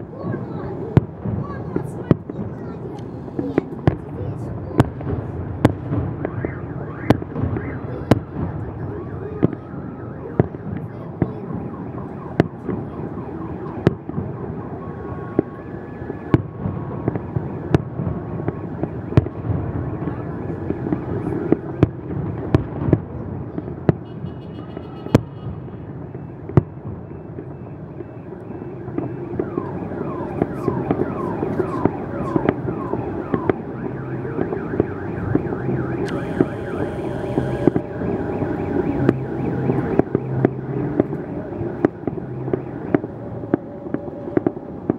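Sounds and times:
distant fireworks bangs: 0.0 - 44.9
fireworks whistles: 34.4 - 40.4.

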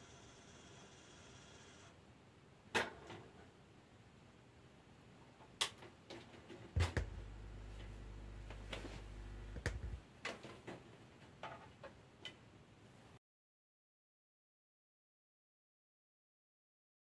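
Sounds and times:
low mains hum: 0.0 - 13.2
hi-fi button clicks: 6.8 - 10.0.

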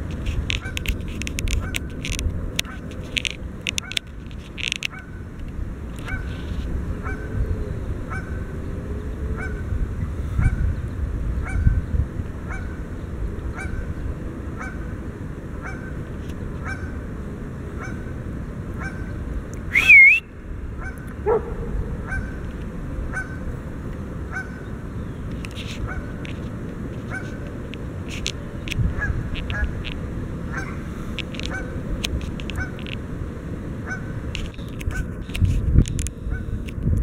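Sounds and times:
wind rumble on microphone: 0.0 - 37.0
goose honking: 0.6 - 1.0, 7.0 - 7.4, 12.5 - 12.8, 13.5 - 13.9, 14.6 - 14.9, 15.5 - 16.0, 16.6 - 17.0, 20.8 - 22.4, 23.1 - 23.5, 24.3 - 24.7, 25.7 - 26.2, 27.0 - 27.4, 30.5 - 30.8, 31.4 - 31.8, 32.6 - 32.8, 33.8 - 34.2.

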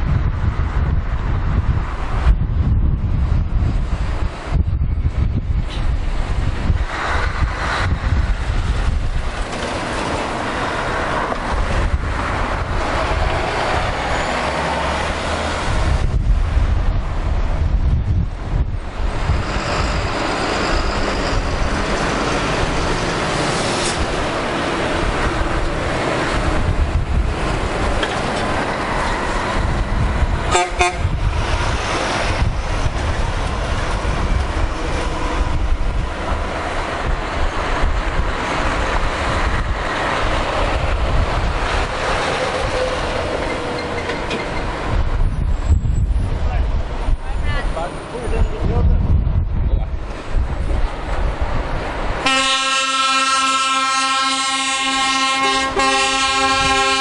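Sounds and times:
heavy lorries driving past: 0.0 - 48.4, 49.9 - 57.0
wind buffeting microphone: 0.0 - 57.0
truck horn blast: 30.5 - 31.2, 52.2 - 57.0.

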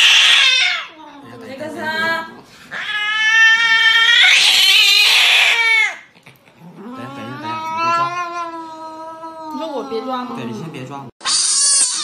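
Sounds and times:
cat yowling in distress: 0.0 - 0.9, 2.7 - 6.0, 6.8 - 10.2, 11.2 - 12.0.

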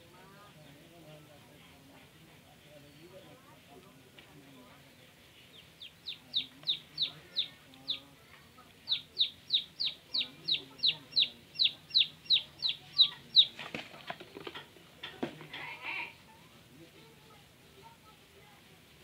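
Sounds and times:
chick peeping in distress: 5.5 - 8.2, 8.8 - 13.6
faint knocks and rustles: 13.6 - 15.7.

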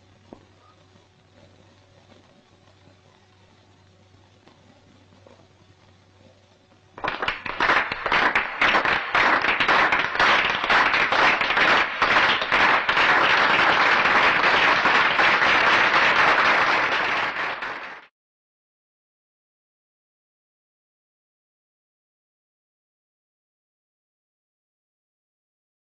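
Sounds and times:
crowd applauding: 7.0 - 18.1.

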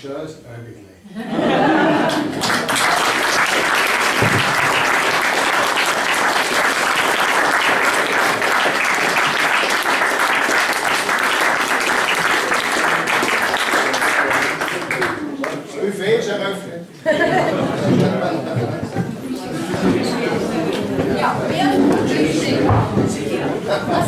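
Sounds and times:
audience applauding: 1.6 - 15.6.

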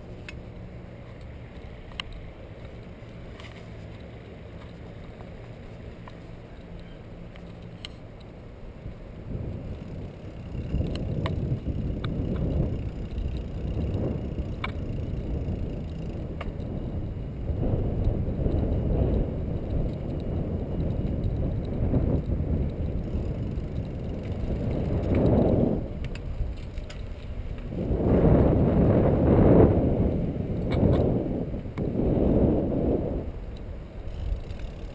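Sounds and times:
bicycle clicks and rattles: 0.0 - 32.0, 33.2 - 34.9
wind buffeting microphone: 8.7 - 34.9.

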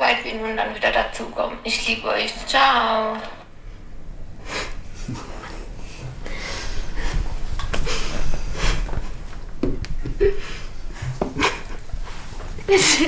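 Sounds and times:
shaky breaths: 4.4 - 9.3
woman sobbing: 12.6 - 13.0.

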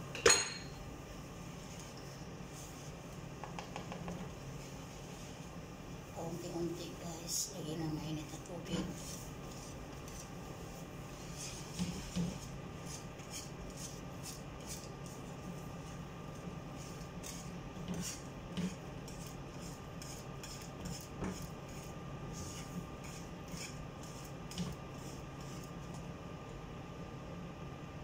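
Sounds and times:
whisk scraping metal pan: 8.3 - 25.7.

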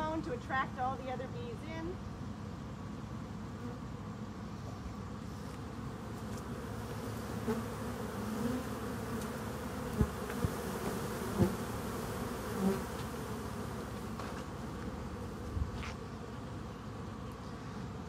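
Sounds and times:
bees buzzing: 2.8 - 18.0.

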